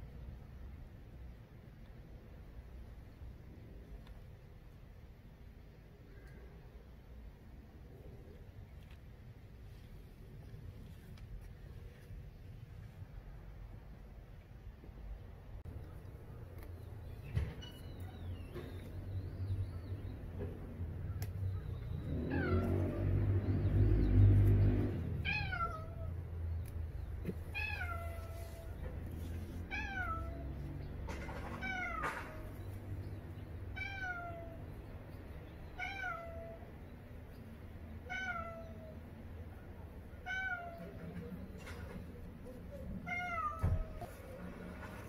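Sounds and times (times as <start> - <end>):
low rumbling noise: 0.0 - 35.8
cat meowing: 22.2 - 23.0, 25.2 - 26.2, 27.5 - 28.7, 29.7 - 30.6, 33.7 - 34.6, 35.8 - 36.6, 38.0 - 39.0, 40.2 - 41.0, 43.0 - 44.2.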